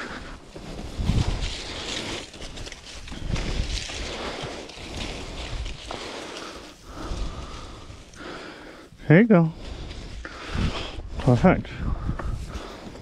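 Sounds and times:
footsteps through dry grass: 0:00.0 - 0:08.9.

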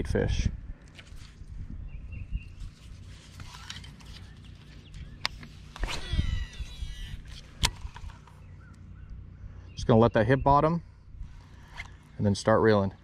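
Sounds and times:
reel spool whirring: 0:03.0 - 0:08.4.

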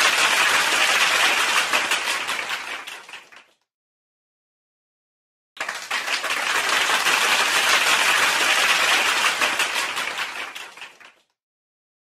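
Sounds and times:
crowd clapping: 0:00.0 - 0:03.6, 0:05.6 - 0:11.4.

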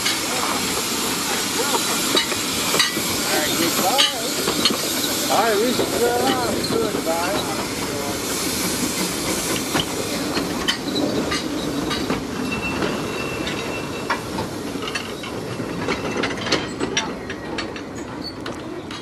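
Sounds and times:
steam locomotive hissing: 0:00.0 - 0:19.0
train wheels clicking over rail joints: 0:00.0 - 0:19.0
high wheel squeal: 0:10.8 - 0:14.2.

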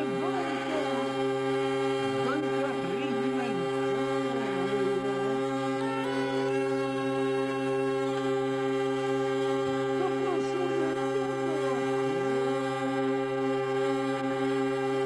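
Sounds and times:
hurdy-gurdy drone: 0:00.0 - 0:15.0
sliding melody notes: 0:00.0 - 0:15.0.

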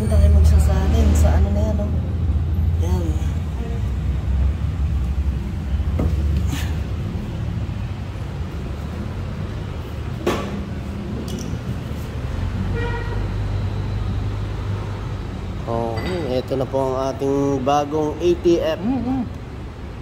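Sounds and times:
car horn toot: 0:12.7 - 0:13.3.

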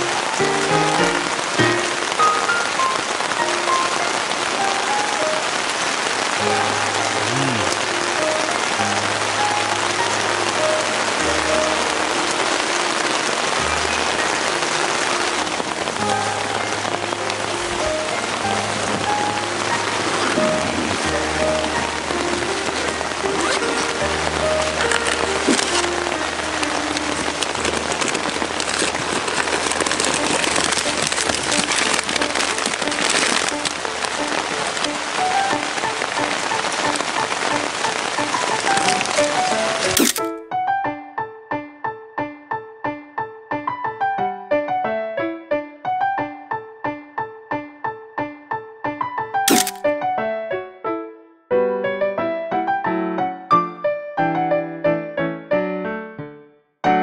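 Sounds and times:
heavy rain on a tent: 0:00.0 - 0:40.3, 0:49.5 - 0:49.8.

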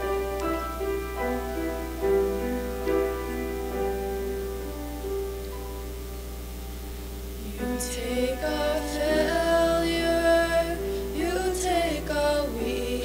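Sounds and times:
piano accompaniment: 0:00.0 - 0:13.0
women singing worship song: 0:07.4 - 0:13.0.

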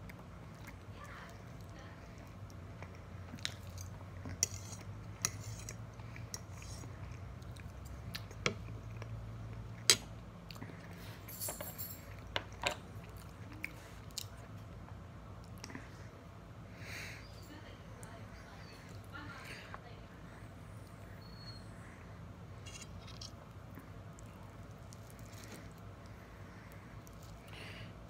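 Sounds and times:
person chewing food: 0:00.0 - 0:11.3, 0:12.1 - 0:16.4, 0:22.5 - 0:28.0.

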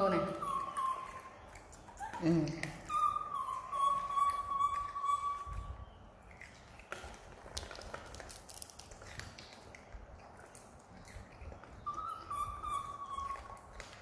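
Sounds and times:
monkey whimpering call: 0:00.0 - 0:05.7, 0:11.9 - 0:13.7.

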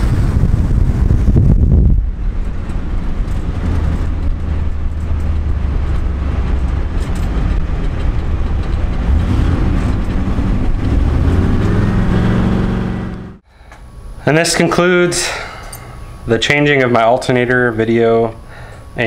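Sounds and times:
road and wind noise: 0:00.0 - 0:14.2
car engine drone: 0:00.0 - 0:19.0.

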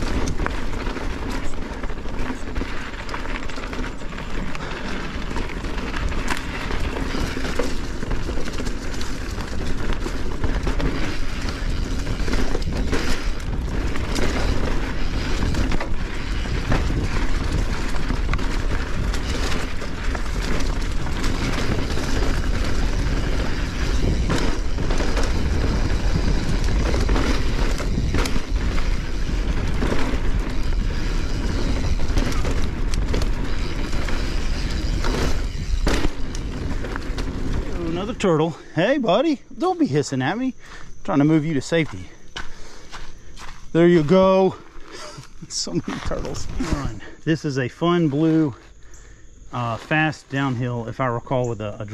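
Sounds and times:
bike rolling and rattling: 0:00.0 - 0:51.9
bike knocking over bumps: 0:04.6 - 0:38.0.

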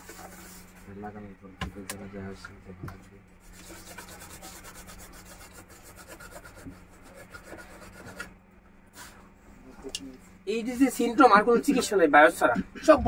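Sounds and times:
scratchy rubbing on circuit board: 0:00.0 - 0:00.9, 0:03.4 - 0:08.4
steady low hum: 0:00.0 - 0:13.0.

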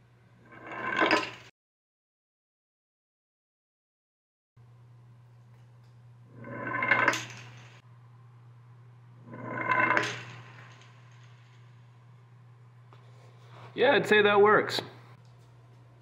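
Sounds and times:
steady low hum: 0:04.6 - 0:16.0.

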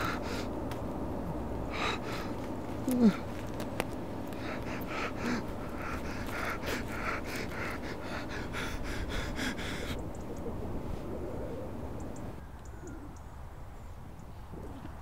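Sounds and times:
man panting hard: 0:00.0 - 0:00.6, 0:01.6 - 0:03.5, 0:04.2 - 0:10.8.

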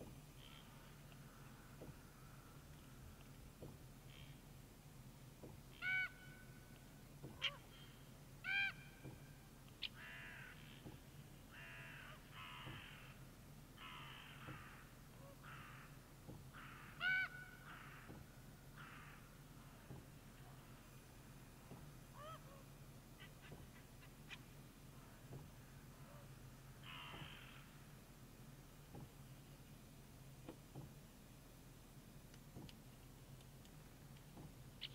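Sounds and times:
raven knocking calls: 0:00.0 - 0:04.6, 0:05.3 - 0:29.2, 0:33.4 - 0:34.9
raven ringing calls: 0:00.4 - 0:03.1, 0:05.7 - 0:21.4, 0:22.0 - 0:28.0.

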